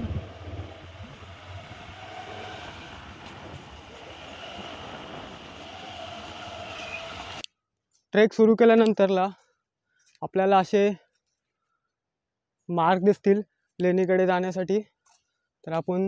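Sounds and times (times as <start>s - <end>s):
motorcycle engine: 0.0s - 7.4s
wind noise: 0.0s - 7.4s.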